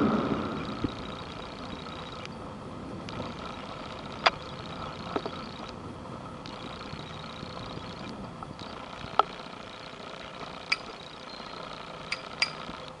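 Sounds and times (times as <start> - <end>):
boat engine running: 0.0 - 13.0
sharp clicks: 10.4 - 11.0.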